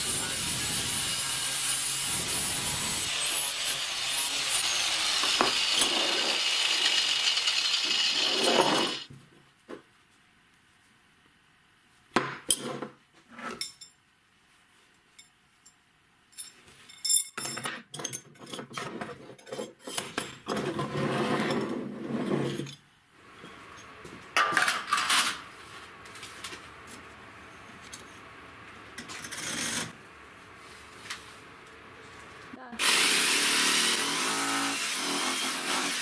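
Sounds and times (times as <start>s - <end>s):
metal scraping: 0.0s - 9.1s.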